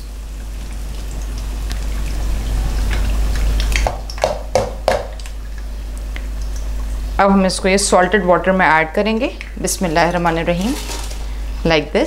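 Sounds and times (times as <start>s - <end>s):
oil dripping into pan: 0.0s - 7.0s
hot oil sizzling: 0.0s - 12.0s.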